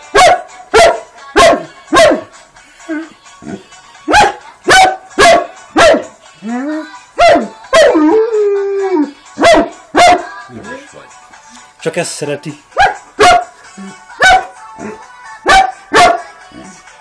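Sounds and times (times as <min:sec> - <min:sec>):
dog barking loudly: 0:00.1 - 0:02.3, 0:04.1 - 0:06.2, 0:07.2 - 0:08.0, 0:09.4 - 0:10.3, 0:12.8 - 0:13.6, 0:14.2 - 0:14.5, 0:15.4 - 0:16.3
dog howling: 0:06.4 - 0:09.7.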